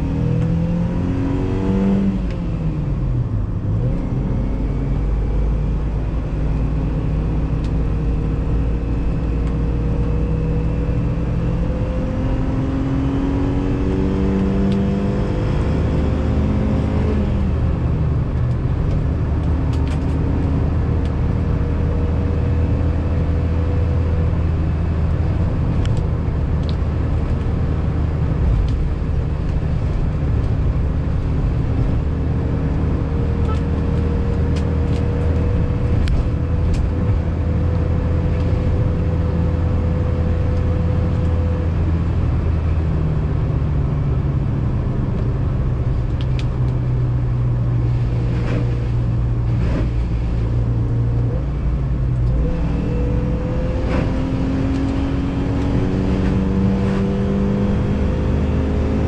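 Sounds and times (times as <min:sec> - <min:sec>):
car engine running: 0:13.3 - 0:59.0.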